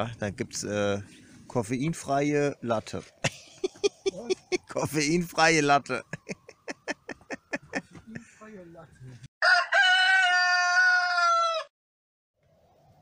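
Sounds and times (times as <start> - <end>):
rooster crowing: 9.4 - 11.7.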